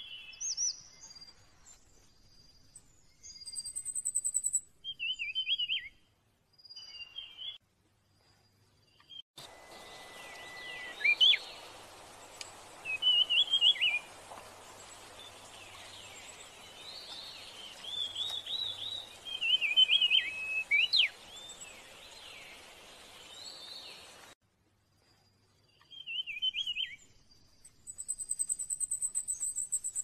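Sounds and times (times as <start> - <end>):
bird twittering chirps: 0.0 - 6.0, 8.9 - 24.2, 25.7 - 30.0
outdoor hiss: 9.4 - 24.4.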